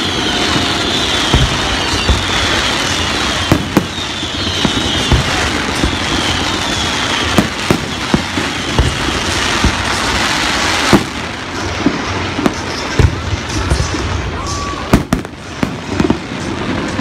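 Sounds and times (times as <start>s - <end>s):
faint falling whistles: 0.0s - 9.8s
fireworks bangs: 0.0s - 17.0s
fireworks crackling: 0.0s - 17.0s.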